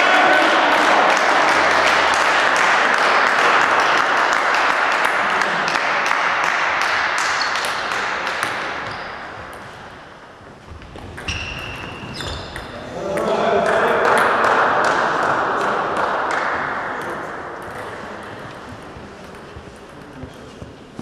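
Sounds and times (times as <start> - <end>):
spectators applauding: 0.0 - 8.4.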